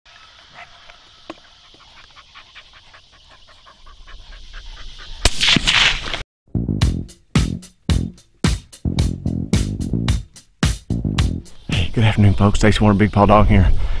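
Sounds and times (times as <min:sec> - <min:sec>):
dog panting fast: 0:01.4 - 0:05.3.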